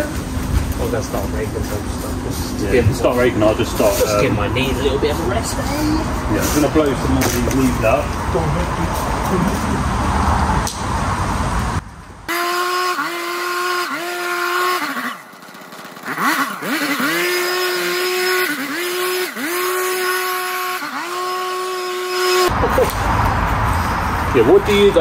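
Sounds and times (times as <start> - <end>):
leaf blower engine revving: 12.3 - 23.0.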